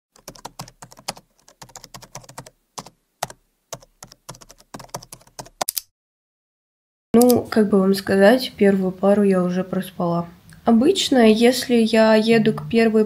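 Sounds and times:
keyboard typing: 0.2s - 5.8s.

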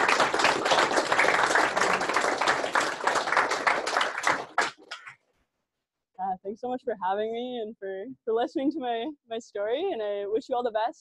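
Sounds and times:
people applauding: 0.0s - 5.2s.

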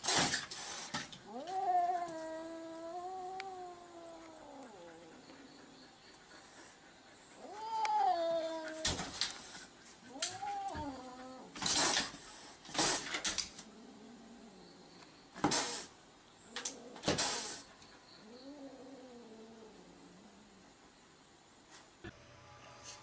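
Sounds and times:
cat hissing: 0.0s - 14.6s, 15.4s - 20.6s
cat yowling: 1.2s - 5.4s, 7.4s - 9.2s, 10.1s - 11.6s.

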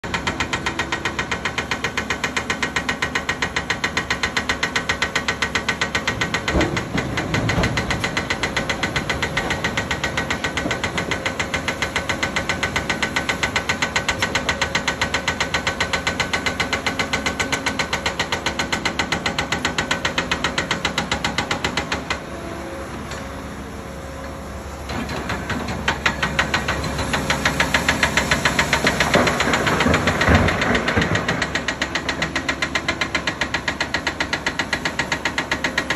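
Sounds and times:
excavator diesel engine under load: 0.0s - 35.9s.

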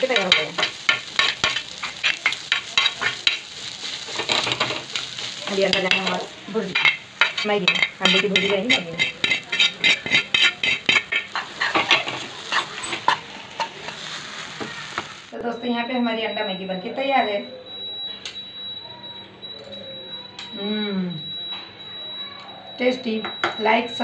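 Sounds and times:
spatula scraping a pan: 0.0s - 15.2s.

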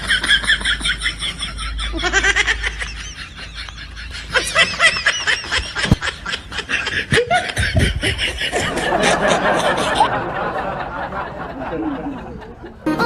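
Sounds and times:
high-pitched snickering laughter: 0.0s - 10.1s.

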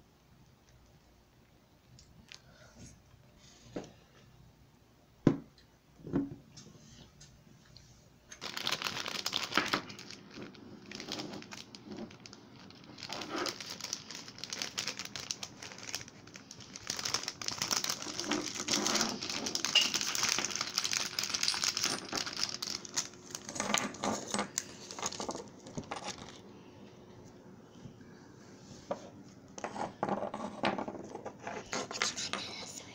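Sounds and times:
plastic wrapping crinkling: 8.3s - 26.5s.

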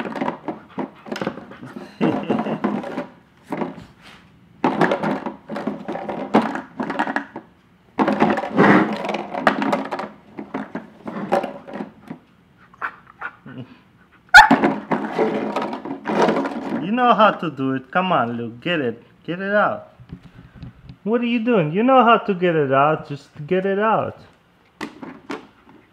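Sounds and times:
plastic bottles clattering and crinkling: 0.0s - 3.9s, 4.6s - 12.2s, 14.4s - 17.0s.

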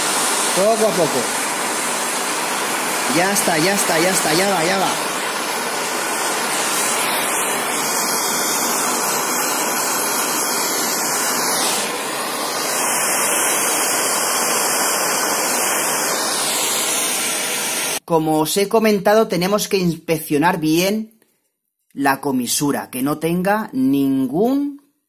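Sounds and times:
blowtorch flame hissing: 0.0s - 18.0s.

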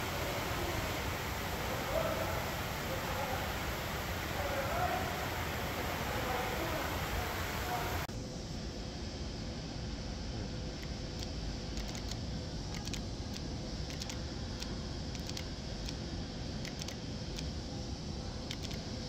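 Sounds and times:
faint light clicks: 10.8s - 16.0s, 16.6s - 17.5s, 18.5s - 18.9s.

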